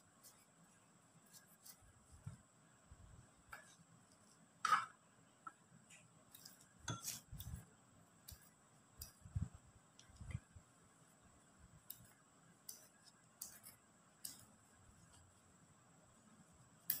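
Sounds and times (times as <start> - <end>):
scissors snipping: 11.8 - 14.6.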